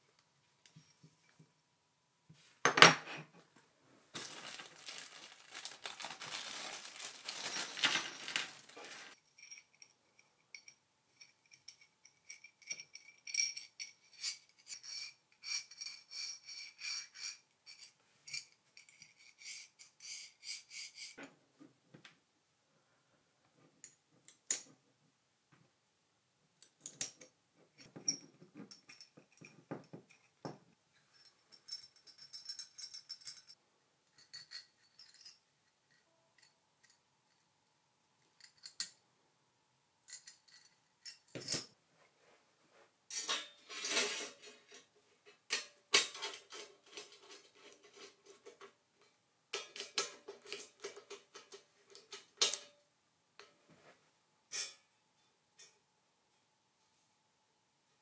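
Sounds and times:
metal parts rattling: 0:04.2 - 0:09.5.

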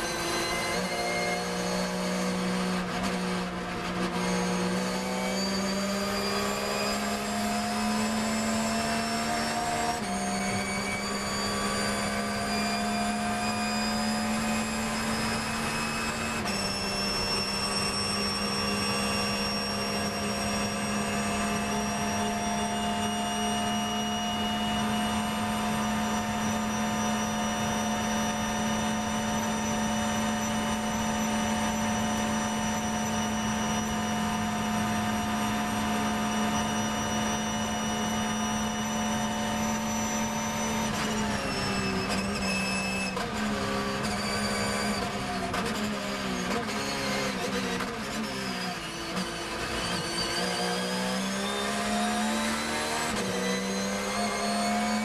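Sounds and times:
racing car engine accelerating: 0:00.0 - 0:55.0.

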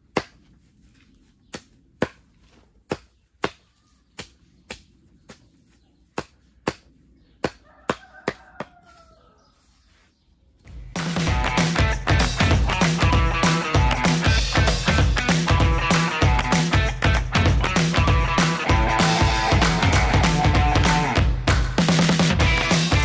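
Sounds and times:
blade chopping stems on wood: 0:00.1 - 0:00.5, 0:01.5 - 0:08.8.

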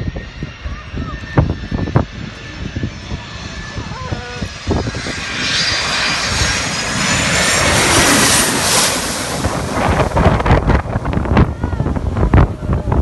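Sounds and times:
high turbine whine: 0:00.0 - 0:13.0
jet airliner engine noise: 0:00.0 - 0:13.0.

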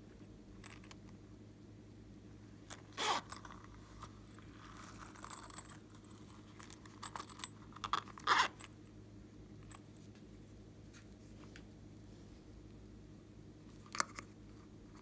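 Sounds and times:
rubber pouch rubbing: 0:02.9 - 0:03.5, 0:07.8 - 0:08.6.

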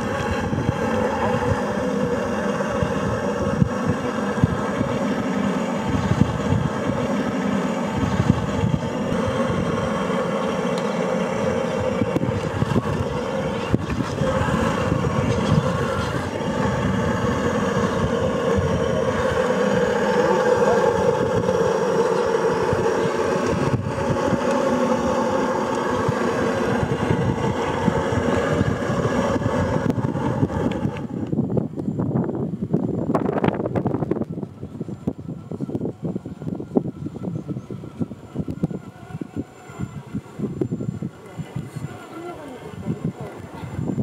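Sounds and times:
electric motor and gears whining: 0:00.0 - 0:44.0.

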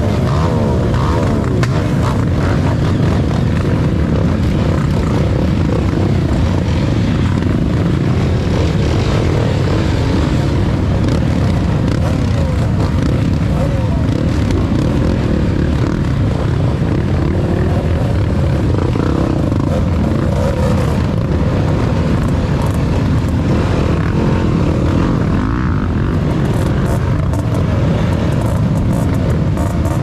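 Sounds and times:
motorcycle engines revving: 0:00.0 - 0:30.0.

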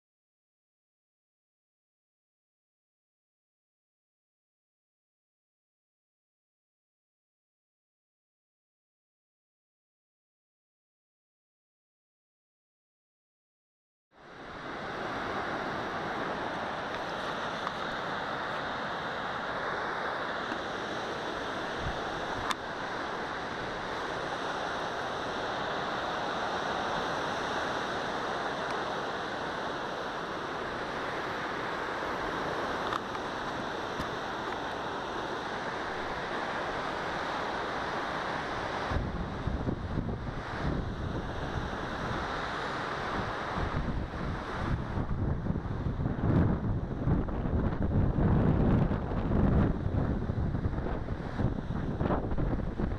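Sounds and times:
waves breaking on shore: 0:14.2 - 0:52.9
wind buffeting microphone: 0:38.5 - 0:52.9
wind rushing: 0:43.0 - 0:52.9.

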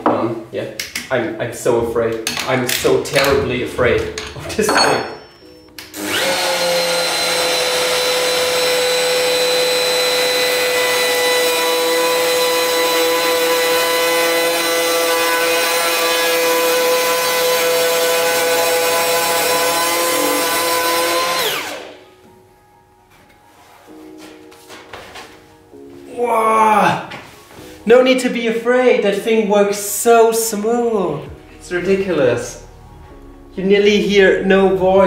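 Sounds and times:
router spinning down: 0:05.9 - 0:12.4, 0:17.1 - 0:22.0
router whining while cutting wood: 0:05.9 - 0:22.0.

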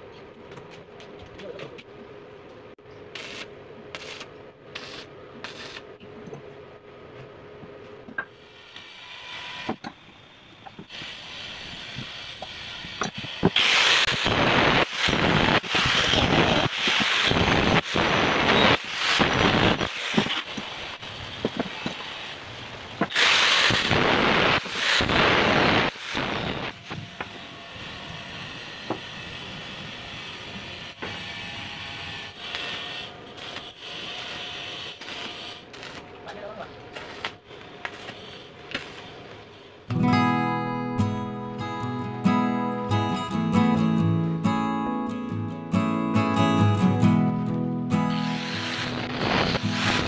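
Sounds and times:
harsh crackling of tool on steel: 0:48.1 - 0:50.0.

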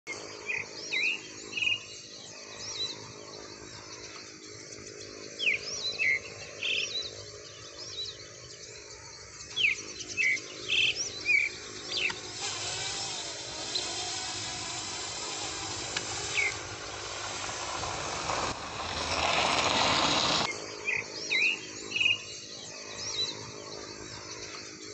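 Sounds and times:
birds alarm calls: 0:09.6 - 0:20.5
drone hum: 0:11.5 - 0:20.5
broad hiss: 0:12.0 - 0:20.5.

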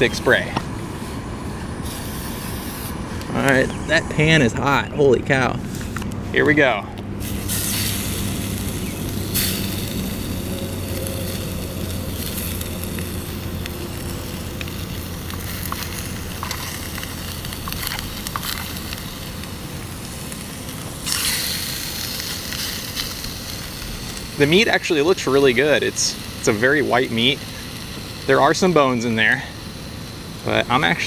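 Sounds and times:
low steady hum: 0:00.0 - 0:31.0
fish fillets sizzling in skillet: 0:07.2 - 0:28.8.

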